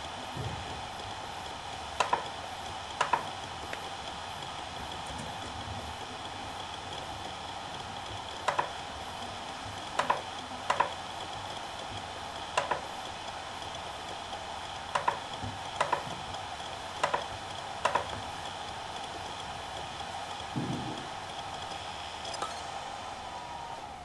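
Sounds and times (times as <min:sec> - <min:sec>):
hard drive whirring: 0:00.0 - 0:24.0
hard drive head clicks: 0:02.0 - 0:02.3, 0:03.0 - 0:03.8, 0:08.4 - 0:08.8, 0:10.0 - 0:11.0, 0:12.6 - 0:12.9, 0:14.9 - 0:16.1, 0:17.0 - 0:18.2.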